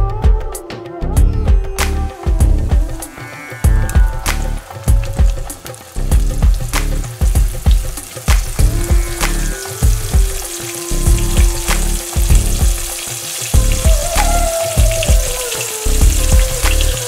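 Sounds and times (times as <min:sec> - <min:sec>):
oil sizzling with pops: 0:02.5 - 0:17.0.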